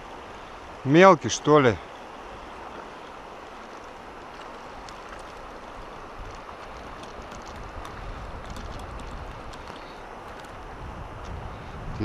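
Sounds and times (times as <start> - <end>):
river rushing: 0.0 - 12.0
small splashes and clicks: 3.5 - 11.4.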